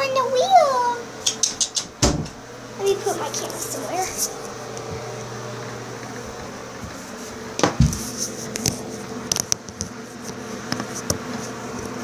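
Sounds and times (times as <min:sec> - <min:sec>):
heavy thump: 0:02.0 - 0:02.4.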